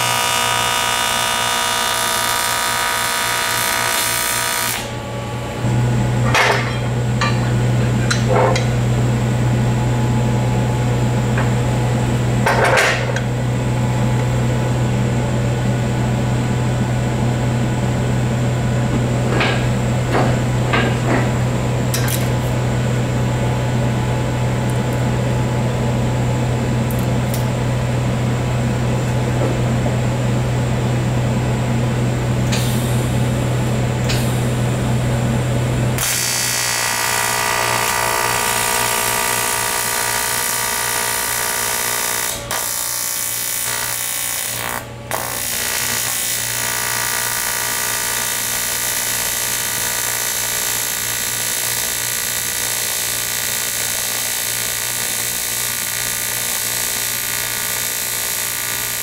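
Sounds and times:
welding arc buzzing and hissing: 0.0s - 9.2s, 19.2s - 25.2s, 32.2s - 59.0s.

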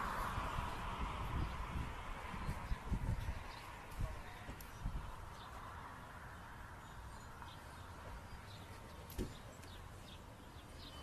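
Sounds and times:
small birds chirping: 1.4s - 11.0s
thump: 9.1s - 9.4s.

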